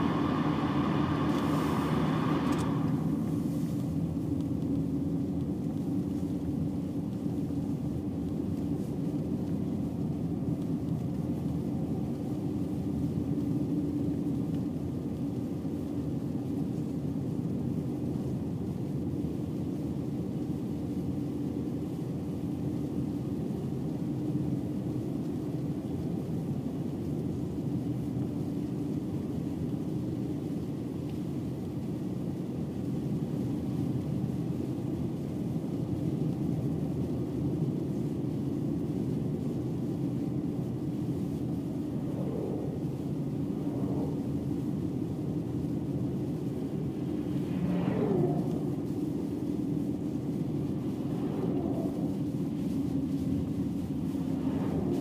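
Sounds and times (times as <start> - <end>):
vehicle engine and tyre noise: 0.0 - 16.6, 29.4 - 55.0
constant low hum: 0.0 - 55.0.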